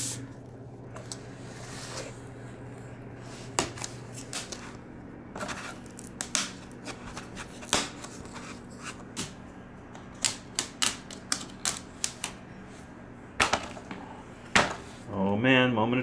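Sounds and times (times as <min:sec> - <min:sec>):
vinyl plank cracking: 0:06.0 - 0:06.6.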